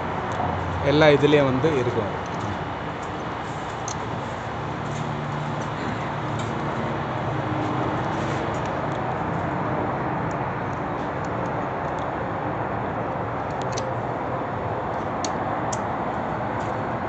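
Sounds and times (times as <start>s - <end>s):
building site background noise: 0.0s - 17.0s
light metallic clicks: 13.4s - 13.9s.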